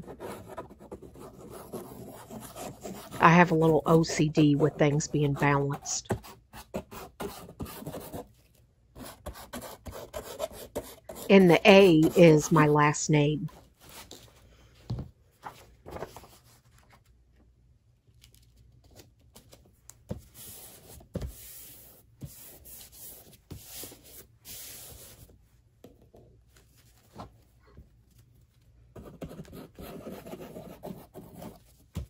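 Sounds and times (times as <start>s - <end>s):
paper rustling and rubbing: 15.4s - 17.1s.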